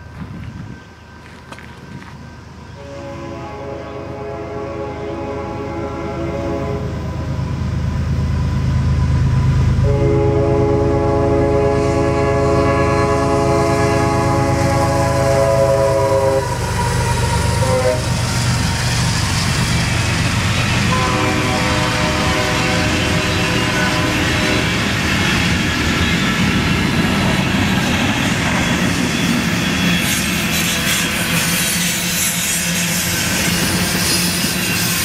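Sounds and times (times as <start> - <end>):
wheel and rail noise: 0.0 - 4.2, 5.0 - 35.0
diesel locomotives running: 0.0 - 35.0
train air horn: 2.8 - 7.4, 9.8 - 16.8, 17.5 - 18.2, 20.8 - 25.4.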